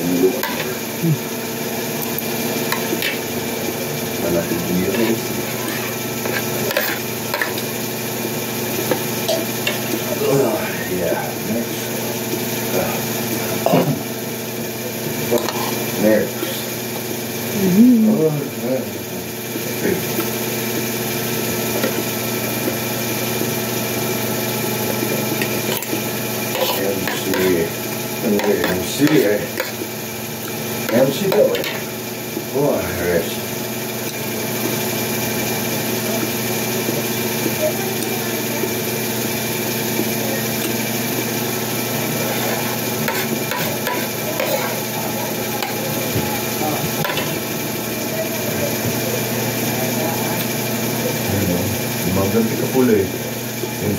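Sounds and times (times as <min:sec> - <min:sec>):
mechanical hum: 0:00.0 - 0:53.9
cutlery scraping ceramic plate: 0:00.4 - 0:00.8, 0:04.9 - 0:07.7, 0:15.4 - 0:15.8, 0:25.4 - 0:27.6, 0:42.2 - 0:44.8.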